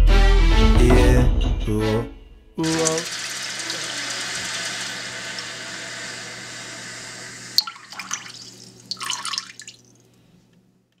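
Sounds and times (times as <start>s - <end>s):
faucet water running into sink: 2.6s - 9.9s
water splashes and drips: 7.6s - 10.1s.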